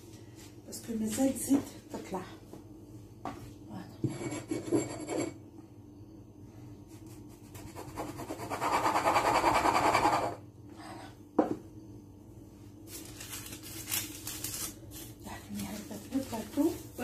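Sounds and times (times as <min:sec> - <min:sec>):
glass scraping on dough: 0:04.0 - 0:05.4
knock on counter: 0:11.4 - 0:11.6.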